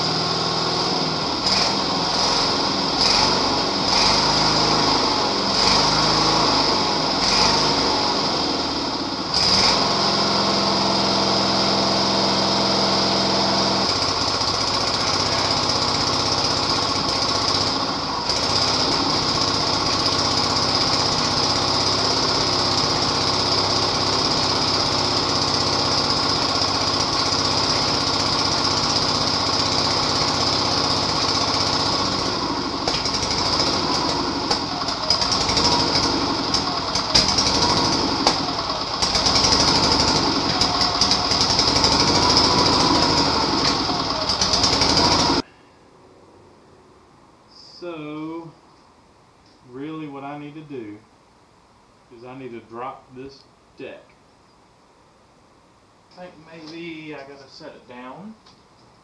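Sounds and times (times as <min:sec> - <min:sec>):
small mower engine running: 0:00.0 - 0:45.5.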